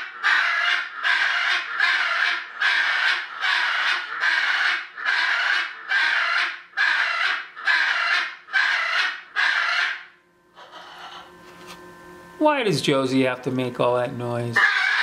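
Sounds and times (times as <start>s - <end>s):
parrot screaming: 0.0s - 11.3s, 14.6s - 15.0s.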